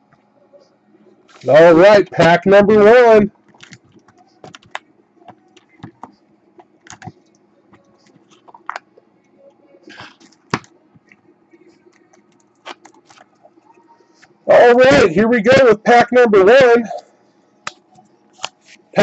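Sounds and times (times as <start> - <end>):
cards in plastic holders clicking: 6.9 - 7.1.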